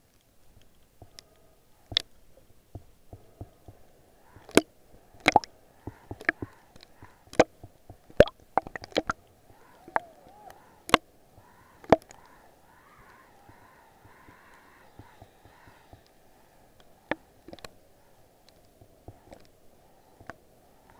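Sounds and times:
faint murmur of water: 0.0s - 20.9s
underwater clicks and knocks: 0.6s - 2.1s, 2.7s - 12.3s, 16.8s - 17.8s.

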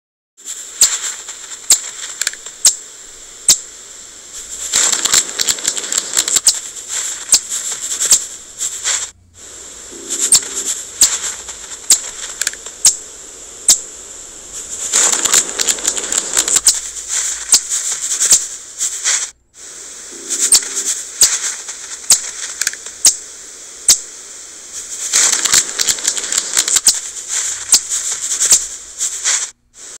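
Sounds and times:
chipmunk gnawing crunching clicks: 0.8s - 2.8s, 4.5s - 18.4s, 20.2s - 23.2s, 24.9s - 29.4s.

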